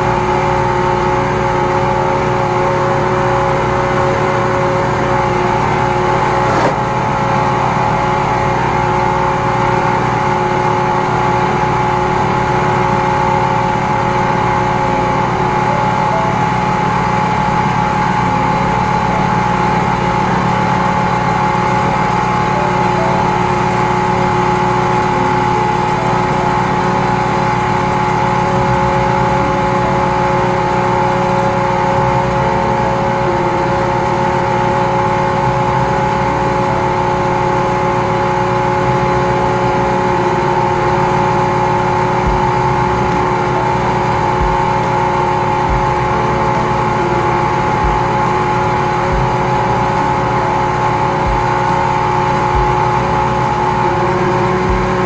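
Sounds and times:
pump engine droning: 0.0 - 55.0.

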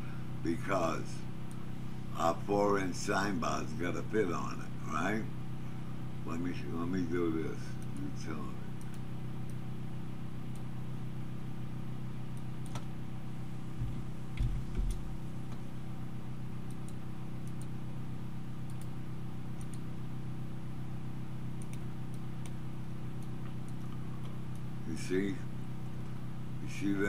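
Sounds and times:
low electrical hum: 0.0 - 27.0
computer mouse clicks: 12.3 - 12.9, 16.6 - 17.8, 18.6 - 19.0, 19.6 - 19.9, 21.6 - 22.6, 23.2 - 24.7
dull low thumps: 13.8 - 15.2.

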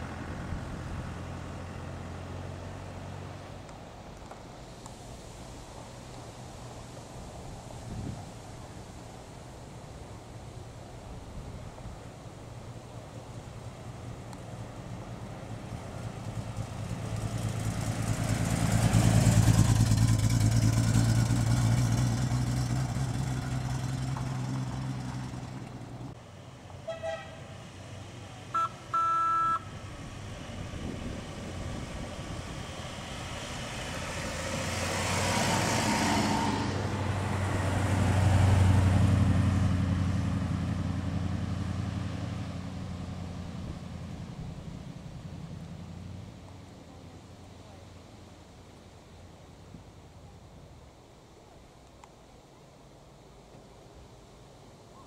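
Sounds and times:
car engine driving past: 0.0 - 3.7, 14.2 - 26.2, 27.1 - 48.4
second car engine passing: 0.0 - 3.8, 13.8 - 26.2, 26.8 - 48.4
car horn toots: 26.8 - 27.4, 28.6 - 29.7.

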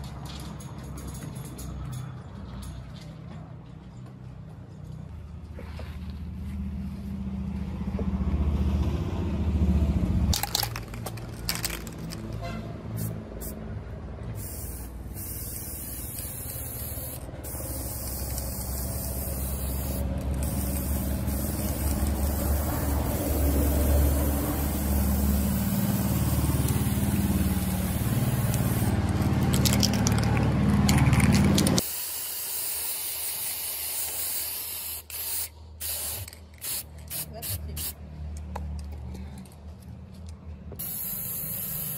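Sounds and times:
spray paint can hissing: 10.3 - 13.6, 14.2 - 38.0, 40.8 - 41.9.

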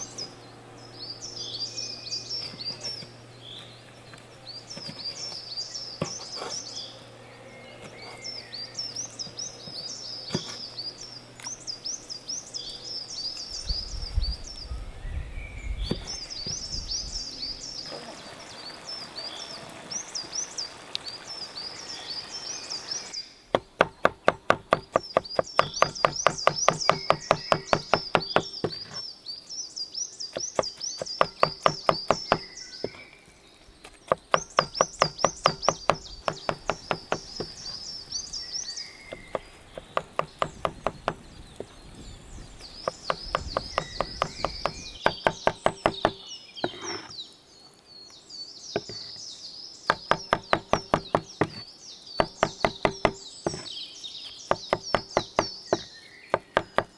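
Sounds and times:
knife chopping on wooden board: 23.5 - 29.0, 30.3 - 33.0, 34.1 - 37.6, 39.1 - 41.7, 42.8 - 47.1, 49.9 - 51.6, 52.2 - 53.7, 54.5 - 56.9.

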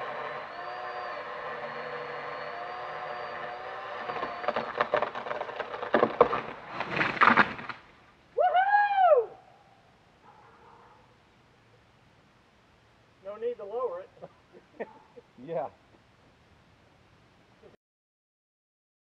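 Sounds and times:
engine drone: 0.0 - 6.7
wood cracking and splintering: 3.6 - 7.9
tree crashing to the ground: 3.9 - 8.0
rising-and-falling whoop: 8.4 - 9.5.

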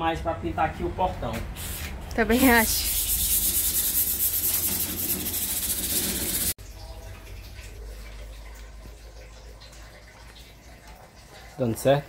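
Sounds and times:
sandpaper rasping on metal: 2.4 - 6.6.

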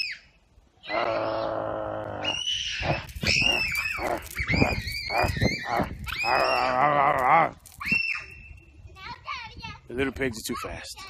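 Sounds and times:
children squealing and shrieking: 0.0 - 8.7.

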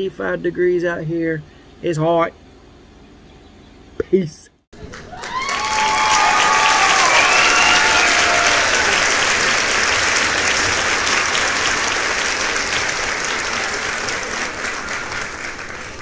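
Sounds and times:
crowd applauding: 4.8 - 16.0
people cheering: 4.8 - 16.0.

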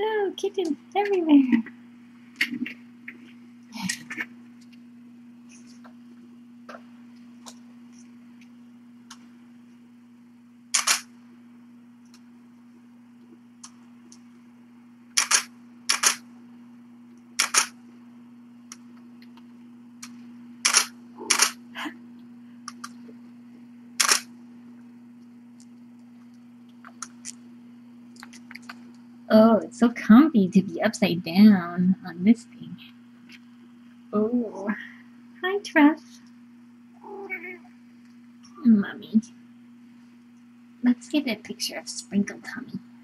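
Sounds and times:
low electrical hum: 0.0 - 43.0
camera shutter clicking: 10.8 - 11.1, 15.2 - 16.2, 17.4 - 17.7, 20.6 - 21.6, 24.0 - 24.3.

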